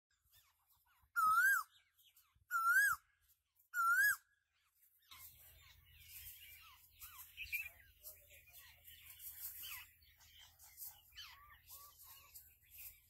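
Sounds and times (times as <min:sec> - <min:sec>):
faint bird chirps: 0:00.1 - 0:13.0
loud whistled calls: 0:01.2 - 0:01.7, 0:02.5 - 0:03.1, 0:03.8 - 0:04.2.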